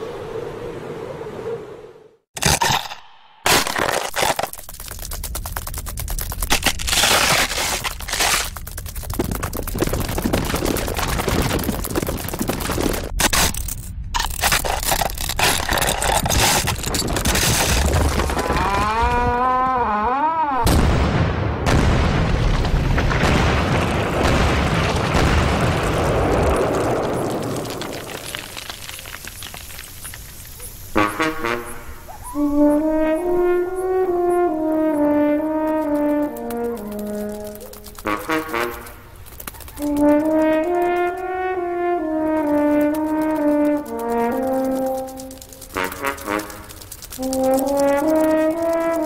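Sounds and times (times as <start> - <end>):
dense crackling and clicking: 2.4 - 19.4, 21.7 - 31.8, 32.5 - 49.0
wavering pitched call: 31.7 - 34.5.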